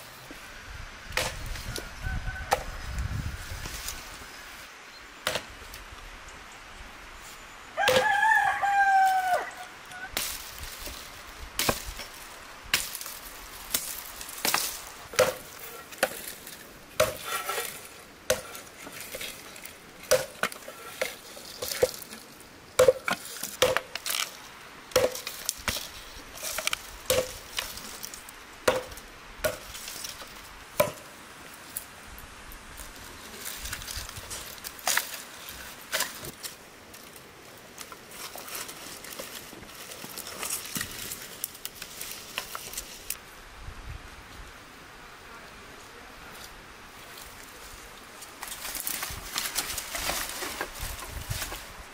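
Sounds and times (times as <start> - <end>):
rooster crowing: 1.6 - 3.1, 7.8 - 10.1
dry branches snapping: 10.1 - 31.1, 32.6 - 43.2, 48.0 - 51.8.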